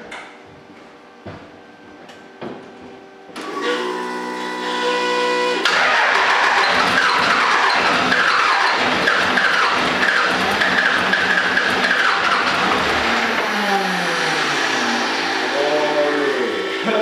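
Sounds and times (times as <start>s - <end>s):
diesel engine starting and running: 3.4s - 17.0s.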